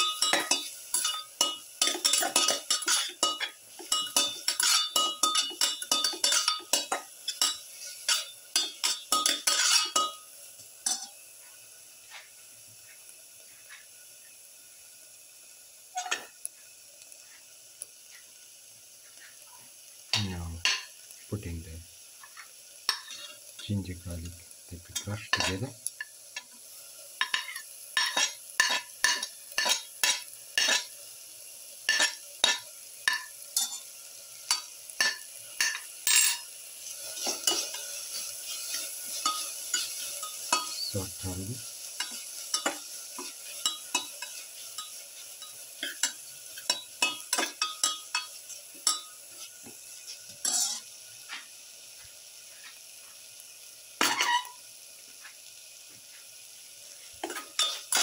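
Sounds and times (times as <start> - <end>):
metal spoon scraping a pan: 0.0 - 11.2, 15.9 - 16.4, 22.2 - 23.7, 24.9 - 31.0, 31.9 - 51.4, 54.0 - 54.6, 57.2 - 58.0
onions sizzling: 0.0 - 58.0.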